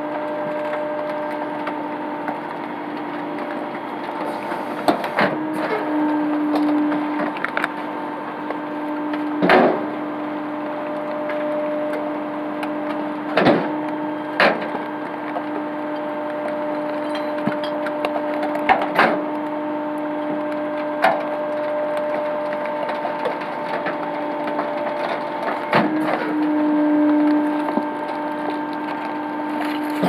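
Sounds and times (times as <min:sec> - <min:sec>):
truck pump and engine hum: 0:00.0 - 0:30.0
packer panel cracks and creaks: 0:24.6 - 0:30.0.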